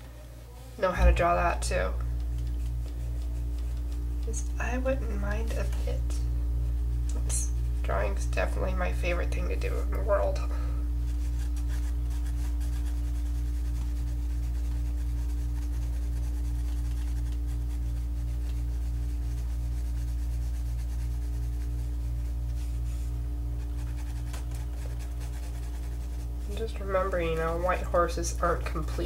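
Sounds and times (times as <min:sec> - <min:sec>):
pulsing low hum: 0:00.0 - 0:29.0
pencil scratching on paper: 0:11.0 - 0:28.6.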